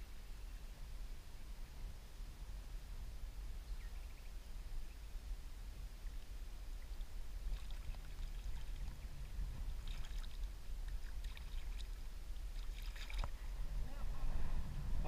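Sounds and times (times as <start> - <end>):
water splashing and trickling: 6.0 - 13.4
steady low rumble: 8.1 - 15.0.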